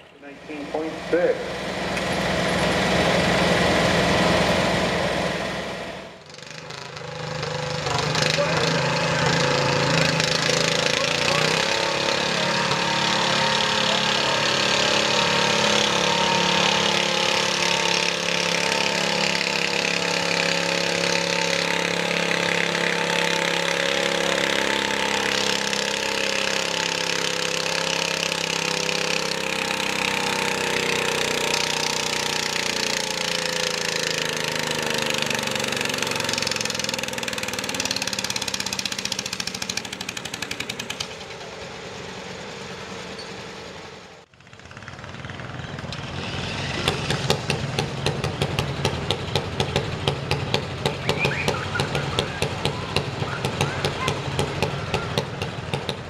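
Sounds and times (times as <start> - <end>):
tractor engine running under load: 0.0 - 56.0.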